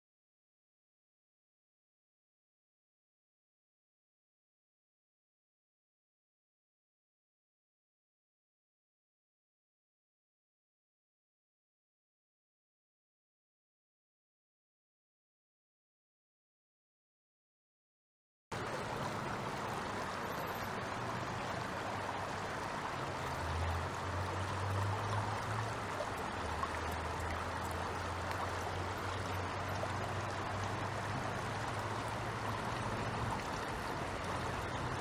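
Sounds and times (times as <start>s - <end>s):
stream water running: 18.5s - 35.0s.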